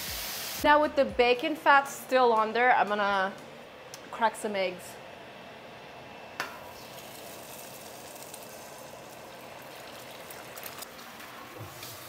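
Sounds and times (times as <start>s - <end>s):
eggs sizzling in fat: 0.0s - 0.6s, 6.5s - 12.0s.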